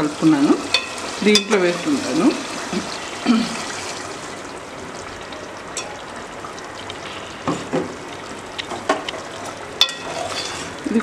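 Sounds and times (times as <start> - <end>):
curry sizzling in metal pot: 0.0 - 11.0.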